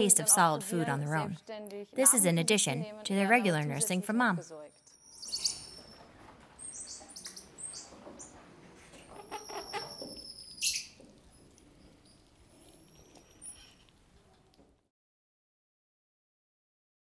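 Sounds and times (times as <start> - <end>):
monkeys chirping: 2.0 - 14.5.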